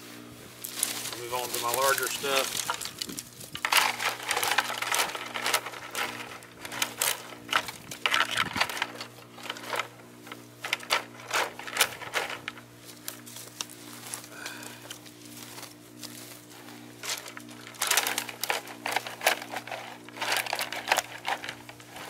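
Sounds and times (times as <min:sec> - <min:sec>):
twigs cracking into plastic bucket: 0:00.6 - 0:22.0.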